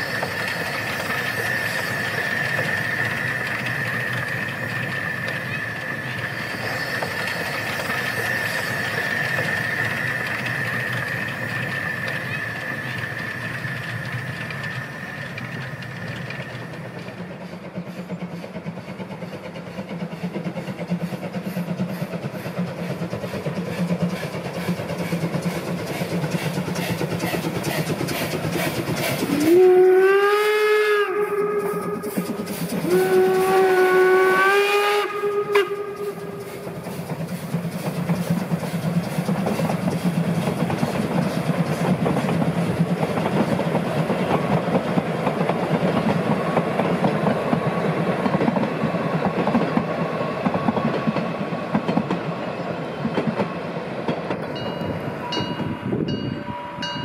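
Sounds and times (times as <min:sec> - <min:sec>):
steam locomotive chuffing: 0:00.0 - 0:57.0
steam whistle blasts: 0:29.3 - 0:36.8.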